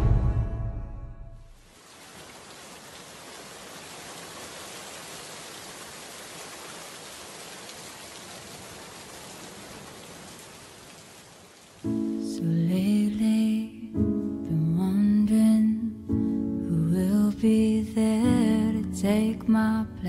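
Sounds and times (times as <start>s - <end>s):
steady rain: 1.5s - 12.4s.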